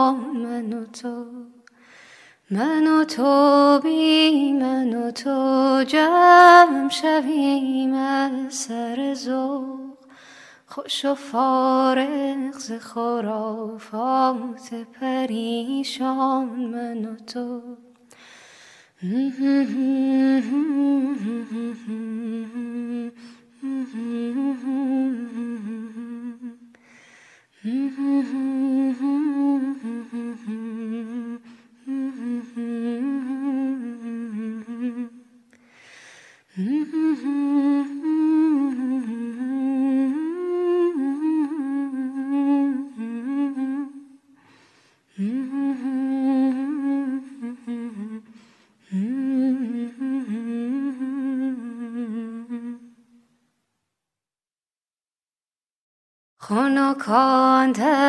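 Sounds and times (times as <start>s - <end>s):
breaths: 1.7s - 2.5s, 10.0s - 10.7s, 18.0s - 19.0s, 23.2s - 23.5s, 26.7s - 27.6s, 35.5s - 36.6s, 44.2s - 45.2s, 48.2s - 48.9s.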